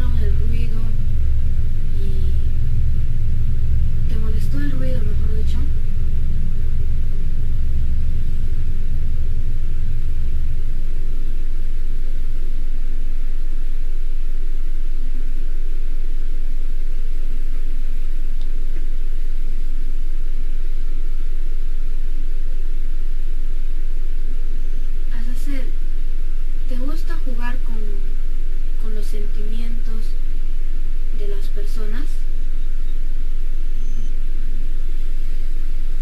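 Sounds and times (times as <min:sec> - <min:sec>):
low rumble: 0:00.0 - 0:36.0.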